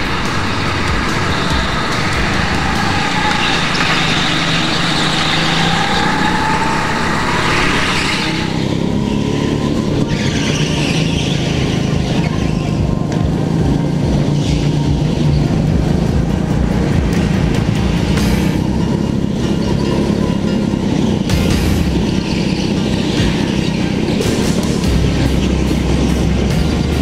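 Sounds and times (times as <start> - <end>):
go-kart engine drone: 0.0 - 27.0
tyre and wind rushing noise: 0.0 - 27.0.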